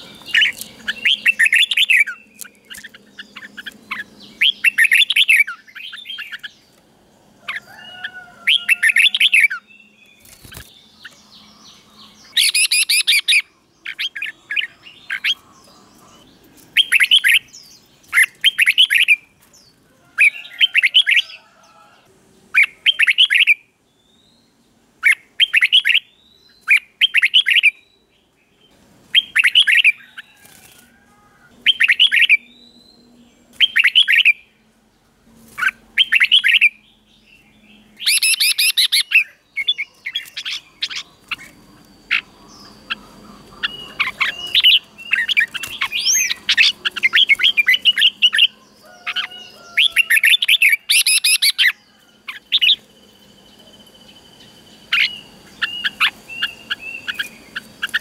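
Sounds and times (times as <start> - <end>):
bird singing whistled phrases: 38.0 - 43.0, 50.7 - 51.7.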